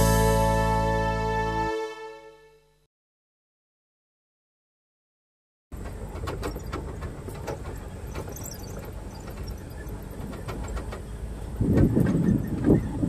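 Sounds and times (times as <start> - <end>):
wind rumbling on microphone: 6.1 - 13.0.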